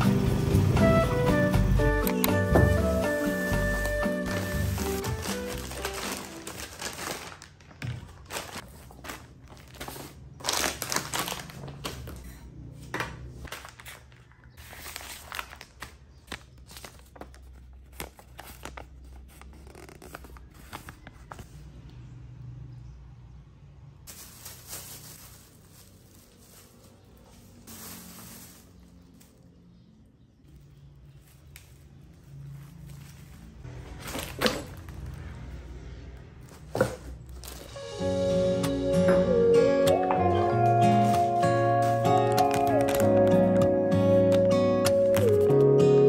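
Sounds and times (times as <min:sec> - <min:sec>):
shopping bags rustling: 0:02.4 - 0:12.4, 0:13.4 - 0:19.3, 0:24.1 - 0:29.8, 0:30.5 - 0:37.9, 0:39.2 - 0:46.0.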